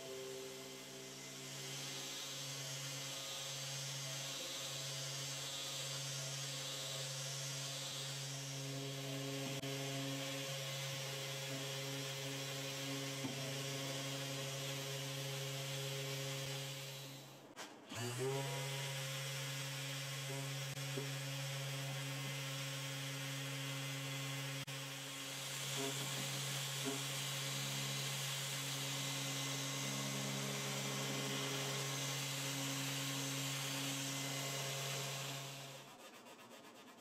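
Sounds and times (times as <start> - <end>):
orbital sander motor hum: 0.0 - 17.2, 17.9 - 36.0
hiss of sanding wood: 1.2 - 8.6.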